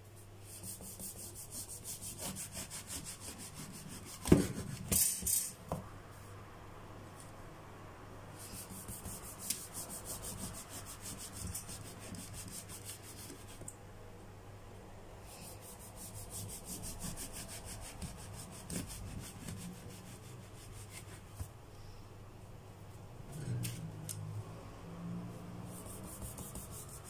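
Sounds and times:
knife sawing through bread crust: 1.0s - 4.8s.

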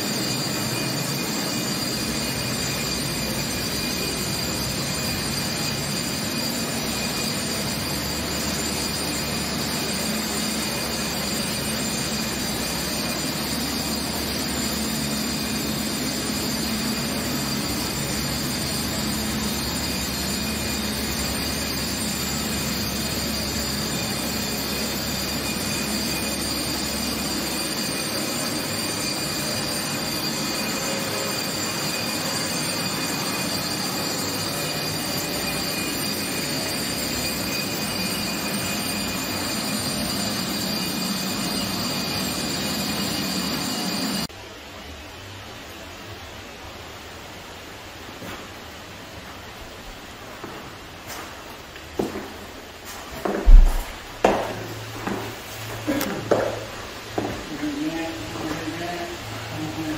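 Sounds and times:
dust-extraction vacuum running: 0.0s - 44.3s, 52.0s - 59.9s
concrete floor grinder grinding: 53.3s - 59.9s
deeper hum: 53.5s - 54.2s.

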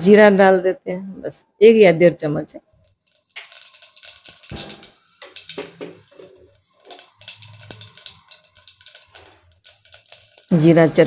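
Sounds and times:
seeds crackling in hot oil: 2.8s - 11.0s.

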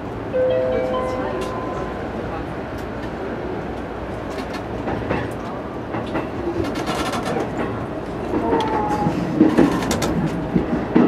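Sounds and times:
electric train rumbling on rails: 0.0s - 11.0s
short high tone: 0.3s - 2.6s
wheels clicking over rail joints: 4.3s - 11.0s.

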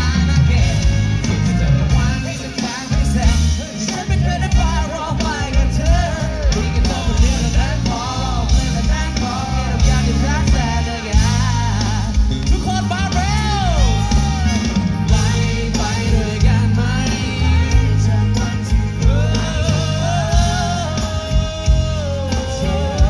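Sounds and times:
live band through pa: 0.0s - 23.0s
man singing: 0.0s - 23.0s.

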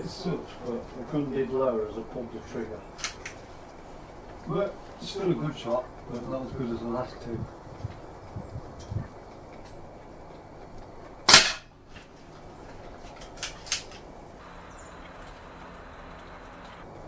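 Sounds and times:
air rifle shot: 11.3s - 11.6s.

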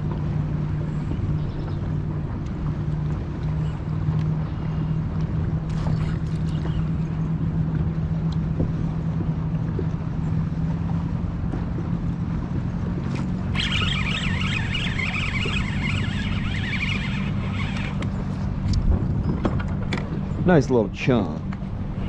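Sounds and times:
motorboat engine droning: 0.0s - 22.0s
high warbling sound: 13.5s - 18.0s.

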